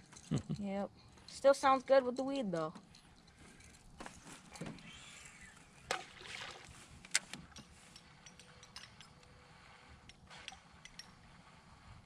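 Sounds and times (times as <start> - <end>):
faint water splashing: 5.9 - 7.0.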